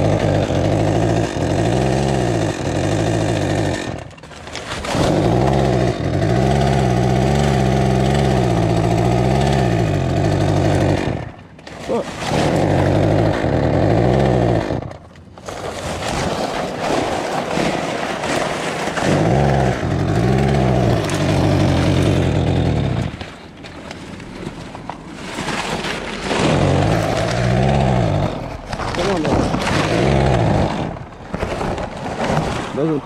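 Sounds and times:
chainsaw revving and idling: 0.0s - 15.0s, 19.0s - 23.2s, 26.2s - 31.2s.

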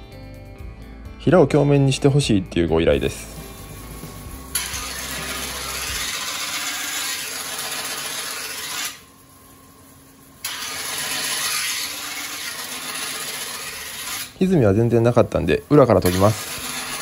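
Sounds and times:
knife grinding on whetstone: 4.6s - 9.0s, 10.4s - 14.4s, 16.0s - 17.0s.

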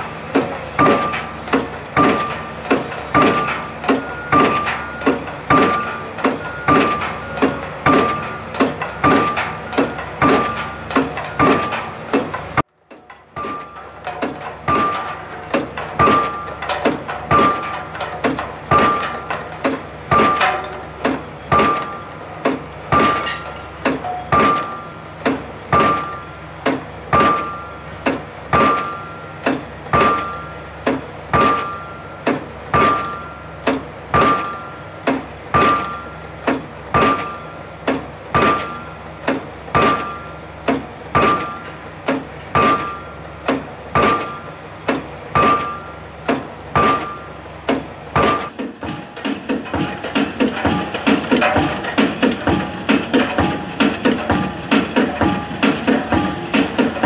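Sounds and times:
hydraulic hammer driving pile: 0.0s - 57.0s.

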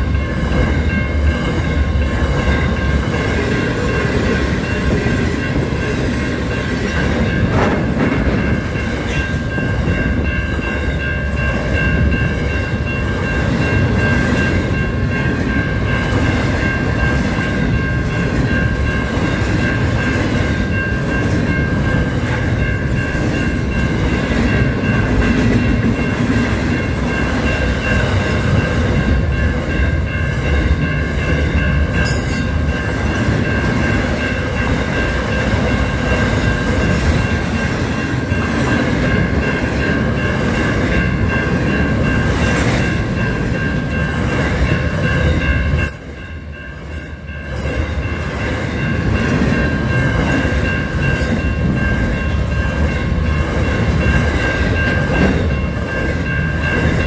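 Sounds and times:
freight train rumbling and clattering: 0.0s - 57.0s
high ringing tone: 8.4s - 57.0s.

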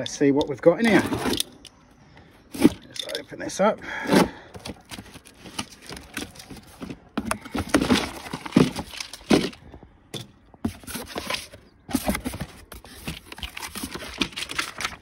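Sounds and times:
cardboard box being opened: 4.0s - 9.6s, 10.6s - 15.0s.

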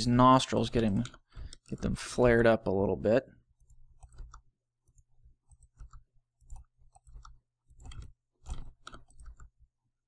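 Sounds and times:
mouse and keyboard clicks: 0.7s - 2.1s, 3.6s - 9.6s.

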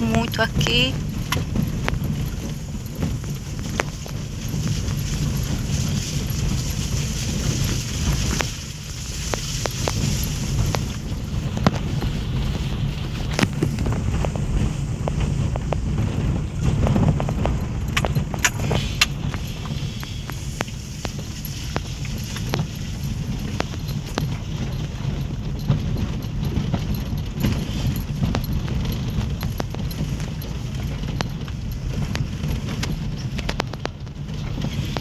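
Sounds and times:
low rumble of engine and tyres: 0.0s - 35.0s
clicks and rattles of car jolting: 1.0s - 35.0s.

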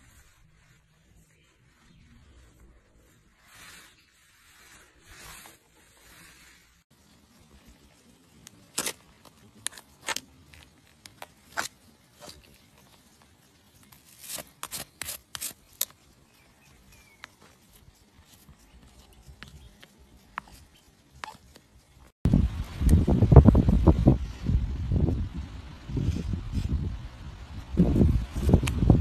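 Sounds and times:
brush rubbing over hoof: 0.0s - 22.2s
hoof pick scraping: 8.9s - 22.0s.

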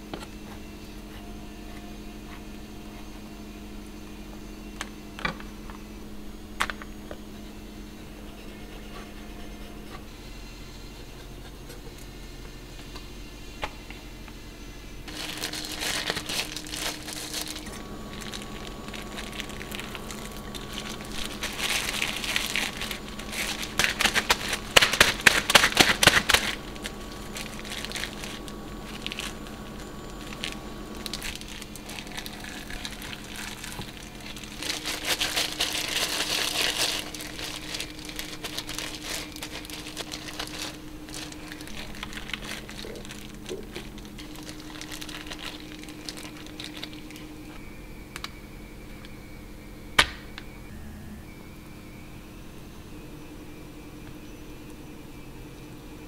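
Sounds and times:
plastic gloves crinkling: 14.9s - 49.2s.

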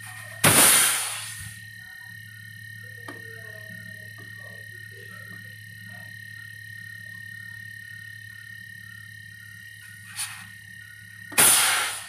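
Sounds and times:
gas hissing from pipe: 0.0s - 1.7s, 9.8s - 12.0s
refrigerator compressor humming: 0.0s - 12.0s.

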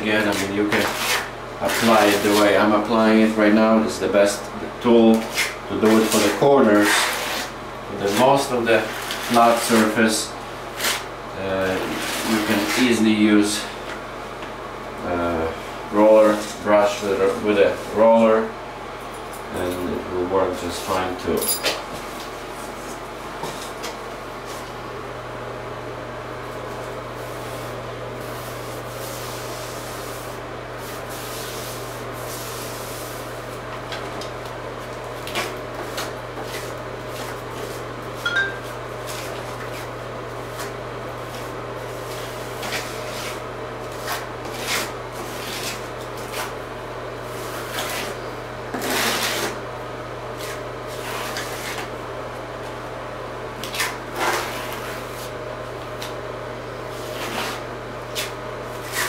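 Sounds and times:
steady low hum: 0.0s - 59.0s
brush scrubbing: 0.1s - 2.7s, 11.8s - 13.0s, 27.2s - 33.4s, 39.0s - 46.6s, 56.9s - 59.0s.

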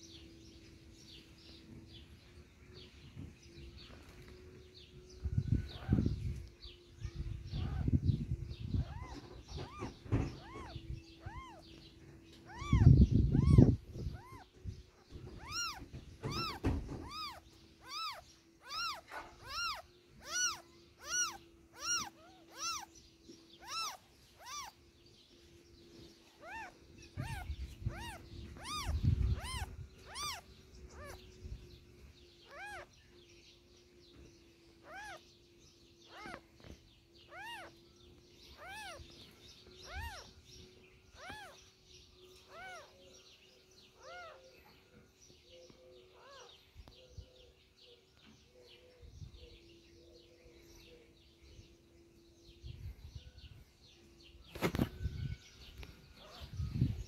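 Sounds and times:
cat mewing: 7.5s - 7.9s, 8.8s - 11.7s, 12.4s - 14.5s, 15.3s - 22.9s, 23.6s - 24.8s, 26.4s - 31.2s, 32.5s - 32.9s, 34.8s - 35.2s, 36.1s - 36.4s, 37.3s - 37.7s, 38.6s - 39.1s, 39.8s - 40.3s, 41.2s - 41.6s, 42.5s - 42.9s, 44.0s - 44.4s.

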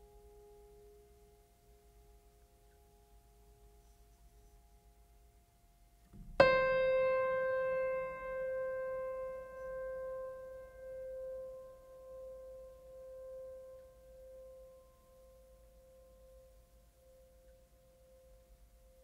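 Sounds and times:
piano note ringing: 6.2s - 15.3s.

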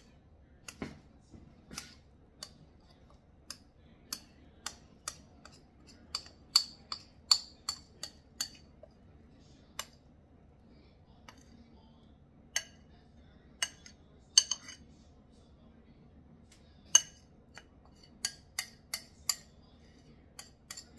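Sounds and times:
metal fork clinking on ceramic bowl: 1.7s - 8.7s, 12.6s - 12.9s, 13.6s - 14.8s, 16.9s - 19.6s, 20.4s - 20.9s.

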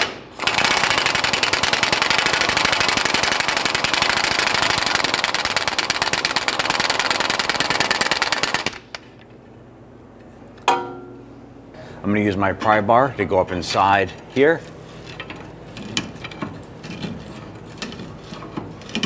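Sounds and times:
impact wrench hammering: 10.7s - 11.2s.

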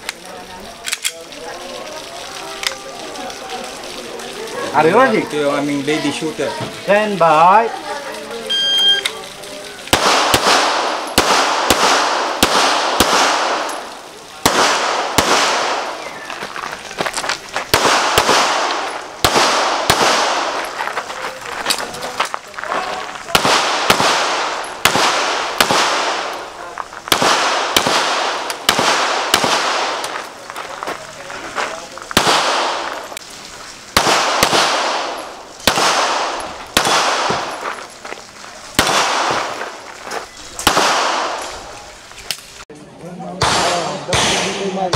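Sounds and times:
pistol shots with echo: 9.9s - 16.1s, 17.7s - 20.7s, 23.3s - 26.5s, 27.1s - 30.2s, 32.2s - 33.1s, 34.0s - 37.6s, 38.8s - 39.6s, 40.6s - 41.6s, 43.4s - 44.9s.

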